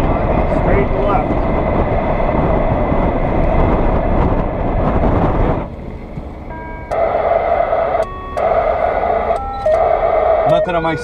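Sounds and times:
steady whine: 0:00.0 - 0:11.0
short beeps: 0:09.2 - 0:11.0.

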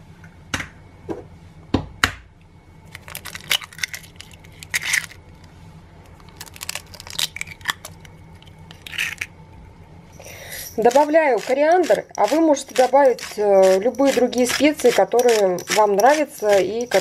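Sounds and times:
eggshells crackling: 0:02.9 - 0:05.2, 0:06.1 - 0:09.3, 0:10.8 - 0:17.0
eggshell knocking on bowl rim: 0:10.9 - 0:17.0.

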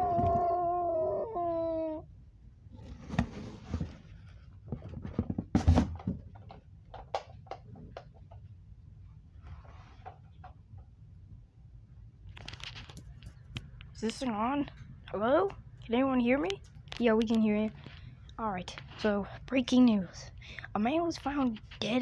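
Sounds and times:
wavering cat-like cry: 0:00.0 - 0:02.1
rustling: 0:02.7 - 0:06.0.

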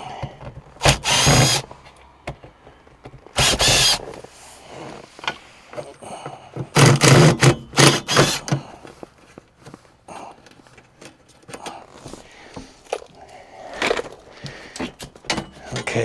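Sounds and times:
loud knocking and rubbing: 0:03.4 - 0:04.1.

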